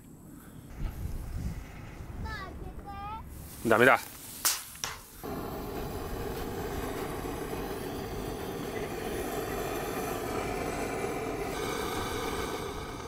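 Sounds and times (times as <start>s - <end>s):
gas torch flame hissing: 5.2s - 13.0s.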